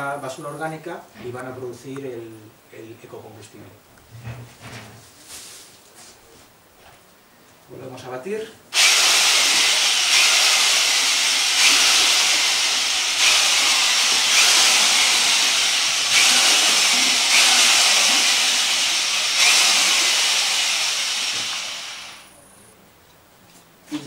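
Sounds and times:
electric drill mixing in bucket: 8.8 - 22.3.

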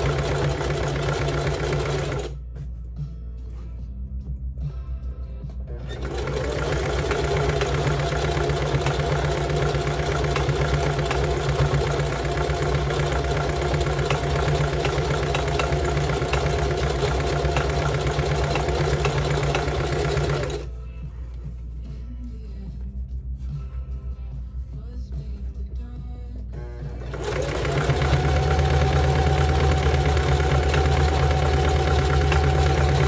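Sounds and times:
sewing machine stitching: 0.0 - 2.4, 5.8 - 20.7, 27.0 - 33.0.

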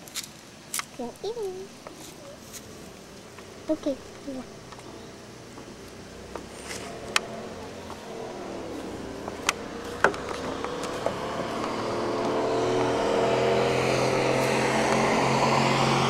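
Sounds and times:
vehicle engine humming: 0.0 - 16.0.

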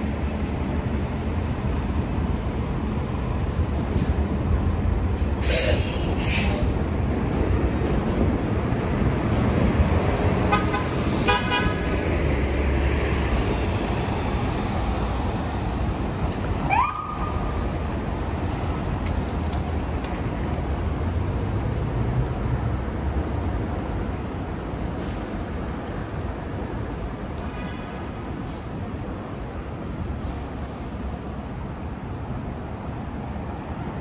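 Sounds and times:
traffic rumble: 0.0 - 34.0
car horn honks: 10.5 - 11.8.

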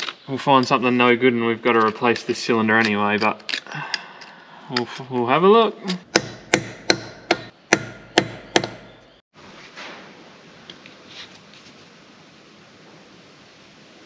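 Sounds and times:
hammer striking metal: 6.1 - 9.2.

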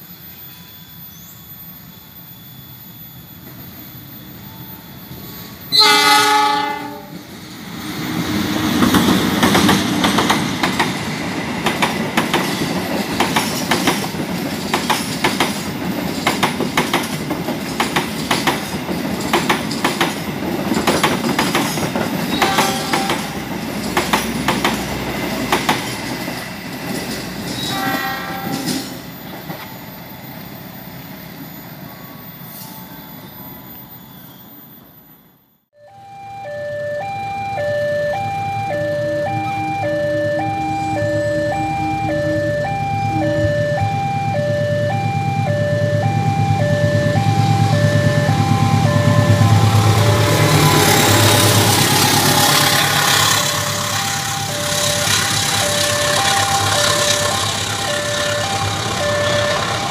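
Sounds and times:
train horn blast: 5.7 - 7.2, 22.3 - 23.4, 27.6 - 29.0, 48.4 - 59.9
train wheels clattering on rails: 7.2 - 29.9, 47.6 - 59.9.

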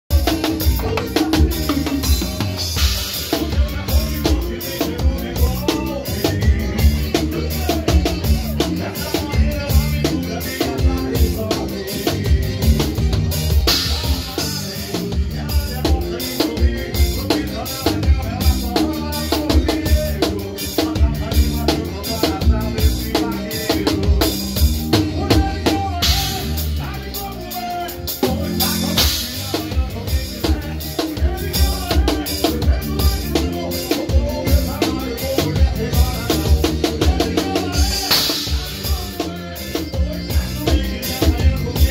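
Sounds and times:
drum kit beat: 0.0 - 41.9
accordion melody: 0.1 - 41.9.

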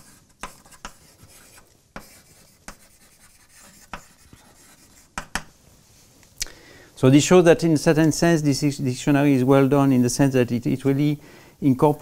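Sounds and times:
chalk scratching on blackboard: 0.0 - 5.6
chalk tapping on board: 0.0 - 5.6.

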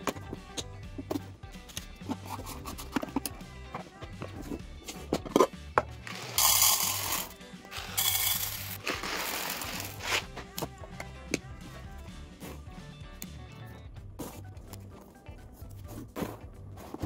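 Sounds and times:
background music: 0.0 - 17.0
pasta rattling into plastic canister: 6.0 - 10.3.

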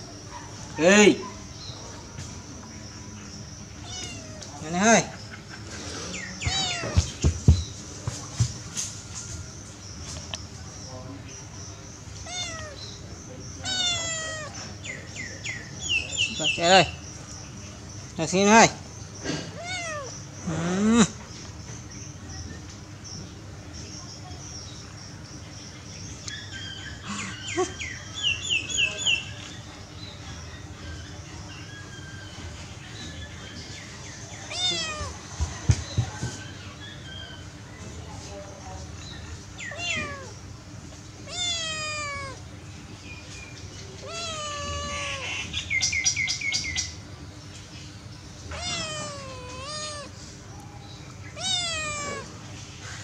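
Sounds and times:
birds chirping: 0.0 - 53.0
kitten chirping: 3.8 - 4.5, 6.4 - 7.3, 12.2 - 12.8, 13.6 - 14.6, 34.5 - 35.2, 39.6 - 40.4, 41.3 - 42.4, 44.0 - 45.5, 48.5 - 52.3
kitten meowing: 3.8 - 4.5, 6.4 - 7.1, 12.2 - 12.8, 13.6 - 14.6, 19.6 - 20.1, 34.5 - 35.2, 39.7 - 40.4, 41.3 - 42.4, 44.0 - 45.5, 48.5 - 50.2, 51.3 - 52.3.

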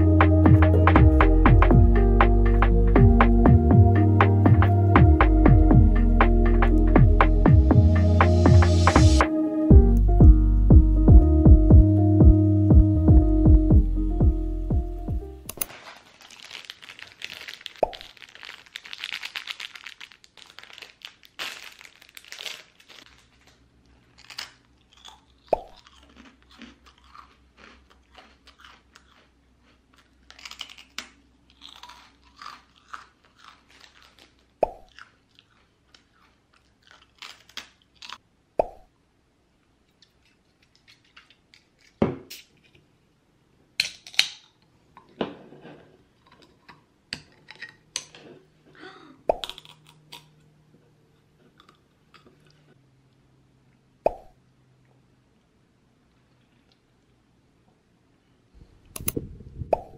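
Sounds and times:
cracker crunching: 15.5 - 38.2, 39.9 - 42.6, 49.4 - 50.5
crackly chewing: 15.7 - 38.2, 39.9 - 42.0.

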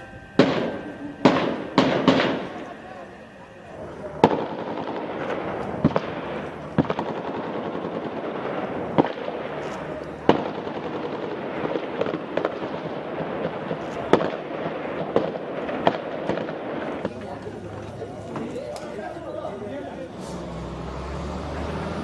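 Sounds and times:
steady background noise: 0.0 - 22.0
gunshots: 0.3 - 3.3, 4.1 - 17.3.

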